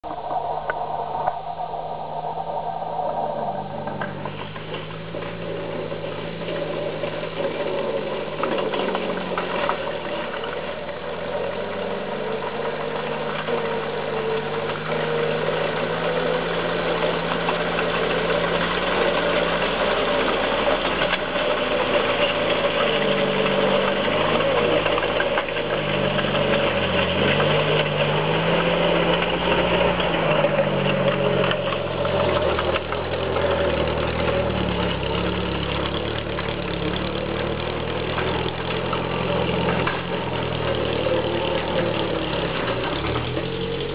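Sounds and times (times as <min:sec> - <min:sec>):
crawler tractor engine running: 0:00.0 - 0:43.9.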